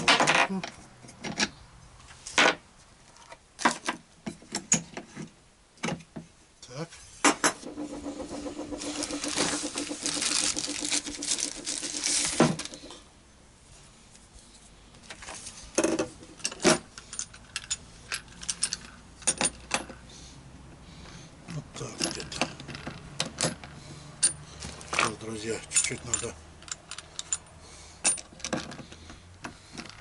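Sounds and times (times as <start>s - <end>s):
rustling and handling noise: 6.9s - 20.0s, 21.0s - 30.0s
metallic clinks and knocks: 15.8s - 20.0s, 21.9s - 30.0s.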